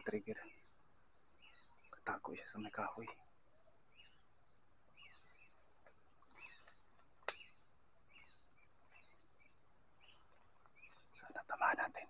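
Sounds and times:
faint high chirping calls: 0:00.0 - 0:12.0
sharp click: 0:07.2 - 0:07.5.

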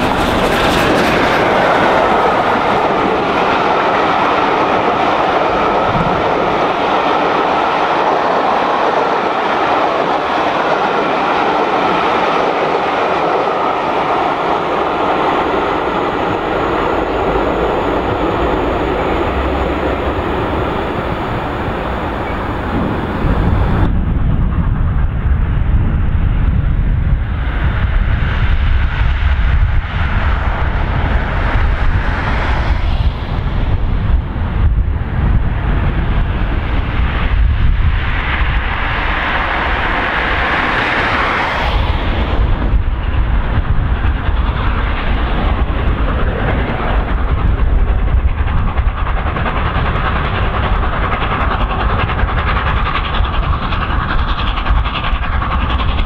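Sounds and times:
steam locomotive hiss: 0:00.0 - 0:23.9, 0:35.1 - 0:56.0
distant train rumbling on rails: 0:00.0 - 0:56.0.

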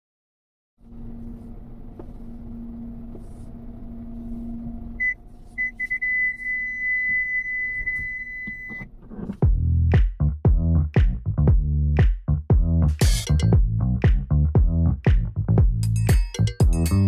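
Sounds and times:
car engine rumble: 0:00.8 - 0:10.1
parking sensor beeping: 0:04.4 - 0:09.0.

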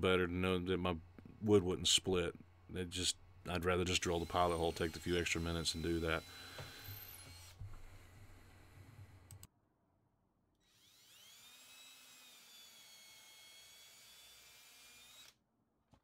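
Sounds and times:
cordless drill motor whine: 0:04.1 - 0:09.3, 0:10.6 - 0:15.4.

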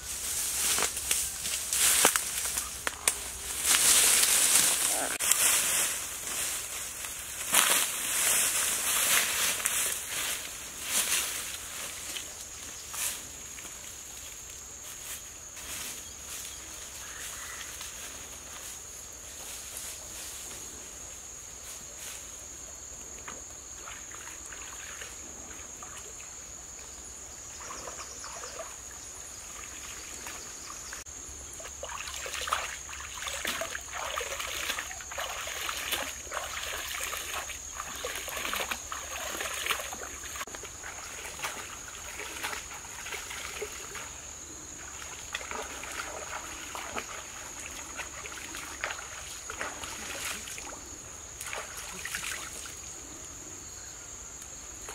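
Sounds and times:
high insect drone: 0:00.0 - 0:54.9
hands splashing in stream water: 0:31.8 - 0:44.0.

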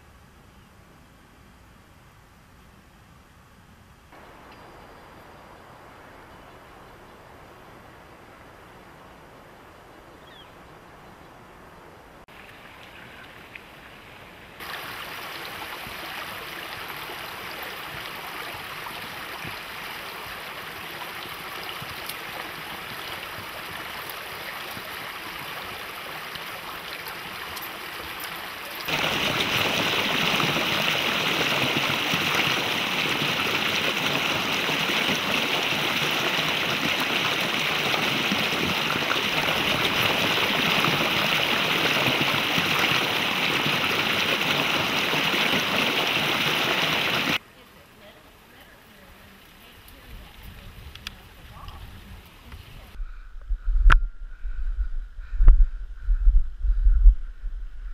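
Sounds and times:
creek rushing over rocks: 0:14.6 - 0:47.4.

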